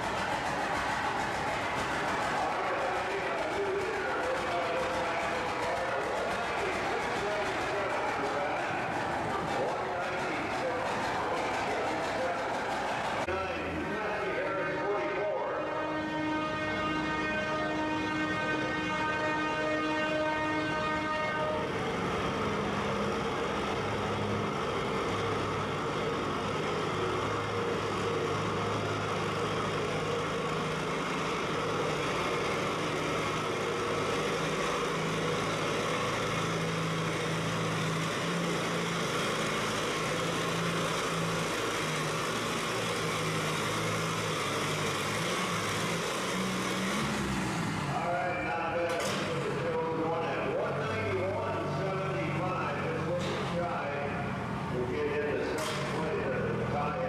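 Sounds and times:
tractor engine under load: 0.0 - 57.0
steady horn: 14.3 - 22.0.

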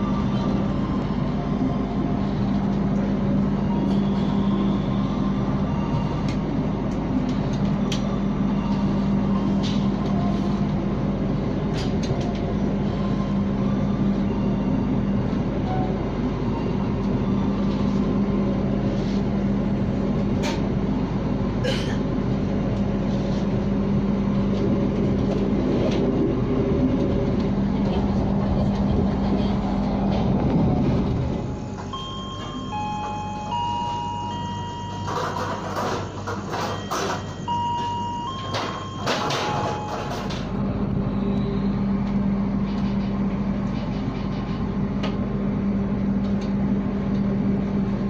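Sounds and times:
constant low hum: 0.0 - 48.0
train rumbling: 0.0 - 48.0.

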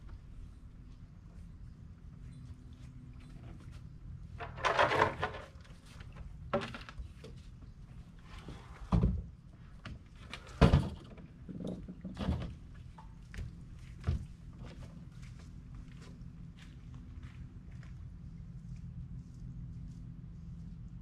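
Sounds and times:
low steady rumble: 0.0 - 21.0
footsteps and gear thumping on deck: 11.8 - 18.0.

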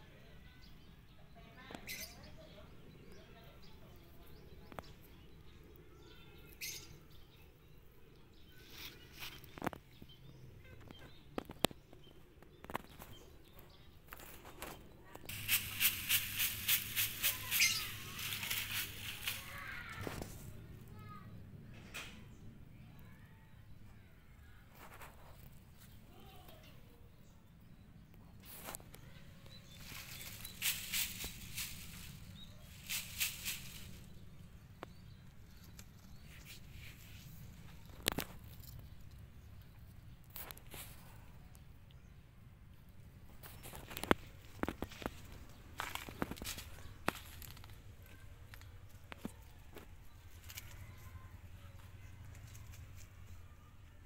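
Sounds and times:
rustles and ticks in leaf litter: 3.2 - 21.2, 24.6 - 26.8, 28.2 - 42.0, 43.2 - 54.0
swishing through dry leaves: 14.2 - 20.6, 29.6 - 34.7, 36.1 - 37.9.

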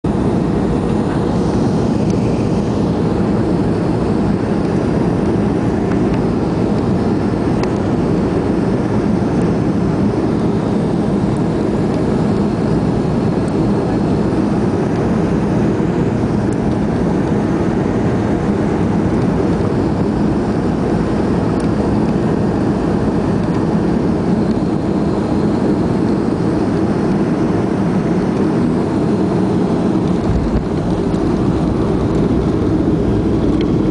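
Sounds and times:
jet engines in aircraft cabin: 0.0 - 33.9
air rushing past fuselage: 30.0 - 33.9.

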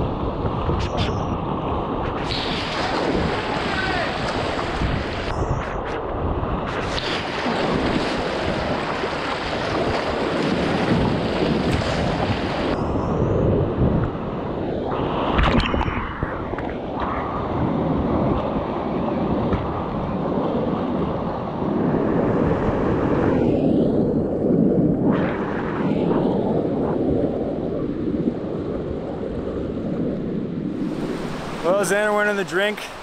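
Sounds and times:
wind buffeting microphone: 0.0 - 33.0
whitewater rapids rushing: 2.3 - 5.3, 30.8 - 33.0.

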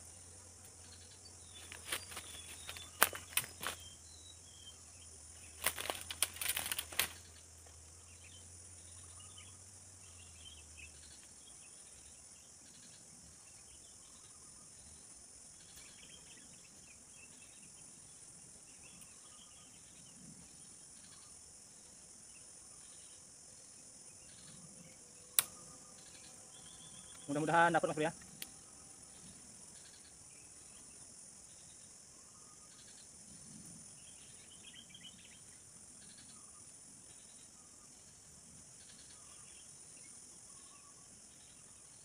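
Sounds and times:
bird chirps: 0.8 - 7.4
leaves and twig rustling: 1.4 - 4.0, 5.3 - 7.9
sharp click: 25.4 - 25.6.

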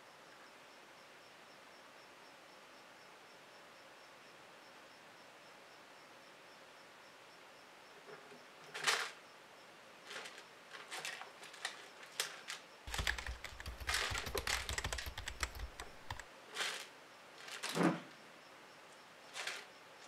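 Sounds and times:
mouse claws scratching plastic: 12.9 - 16.2.

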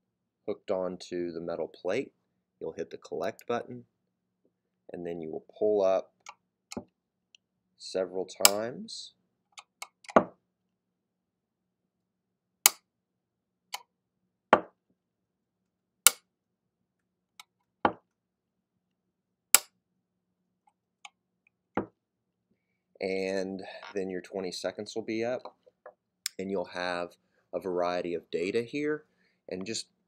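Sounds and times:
magnet clacking off metal plate: 12.6 - 12.8.

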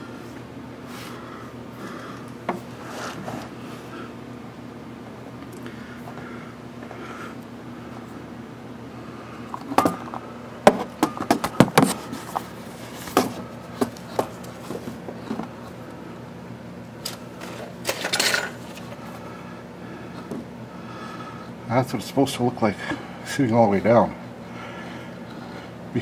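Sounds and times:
steady low hum: 0.0 - 26.0
metal parts rattling: 17.4 - 18.8
metal tools clinking: 17.8 - 18.6.

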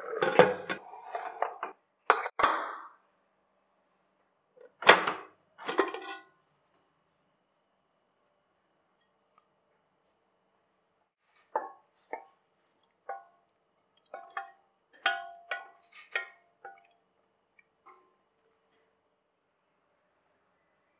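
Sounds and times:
wooden spatula knocking on metal pot: 14.1 - 17.0.

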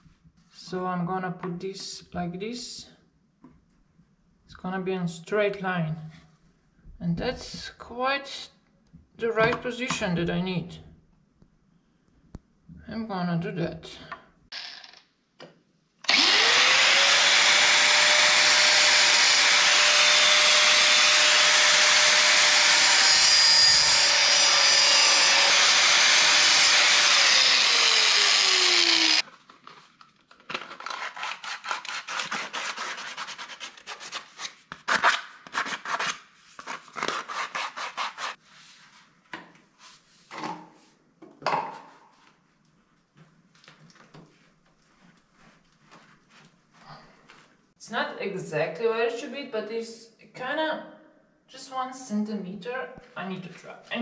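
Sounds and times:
angle grinder cutting pipe: 16.0 - 29.2.

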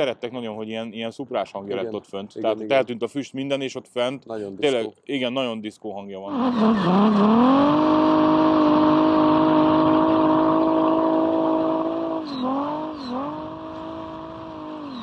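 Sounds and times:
diesel engine revving: 6.3 - 15.0.

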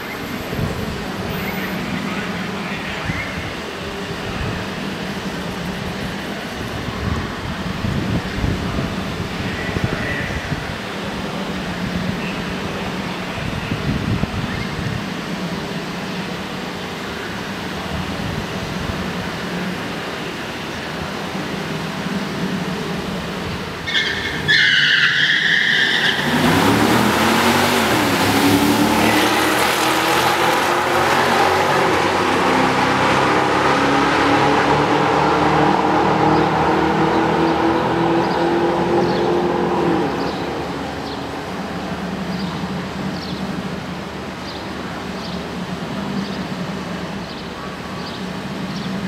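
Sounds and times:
race car engines accelerating: 17.4 - 47.2.

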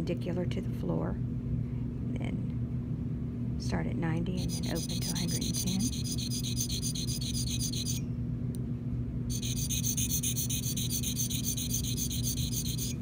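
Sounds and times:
low steady hum: 0.0 - 13.0
sharpening stone scraping blade: 4.4 - 8.0, 9.3 - 13.0.

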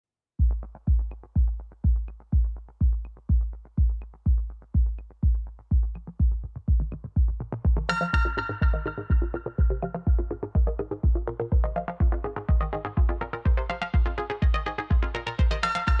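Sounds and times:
deep kick drum beat: 0.4 - 16.0
electronic dance music: 0.5 - 16.0
bright synth chord: 8.0 - 9.9.

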